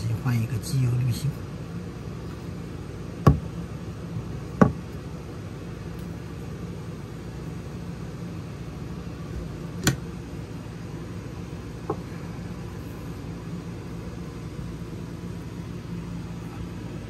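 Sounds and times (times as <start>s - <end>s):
steady low hum: 0.0s - 17.0s
sharp knocks: 3.2s - 3.5s.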